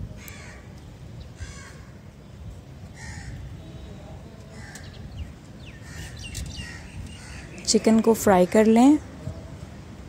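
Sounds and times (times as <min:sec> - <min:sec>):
crow cawing: 0:00.2 - 0:00.6, 0:01.4 - 0:01.9, 0:03.0 - 0:03.4, 0:04.5 - 0:04.9, 0:05.8 - 0:07.6.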